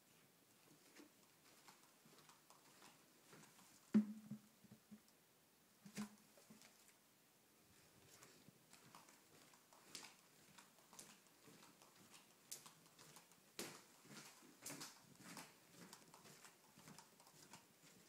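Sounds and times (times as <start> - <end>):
faint footsteps: 0.2 - 4.9, 8.0 - 18.0
small taps: 3.9 - 5.1.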